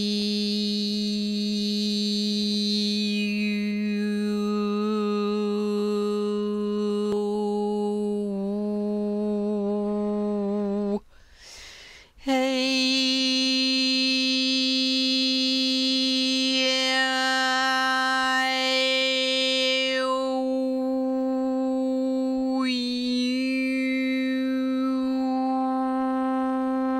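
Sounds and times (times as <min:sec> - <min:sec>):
person overtone singing: 0:00.0 - 0:11.1, 0:12.2 - 0:26.9.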